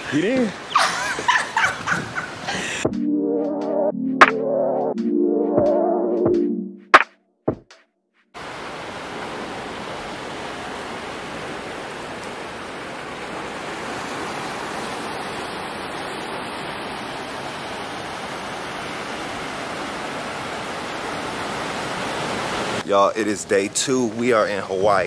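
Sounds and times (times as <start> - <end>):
surf washing over rocks: 8.4 - 23.4.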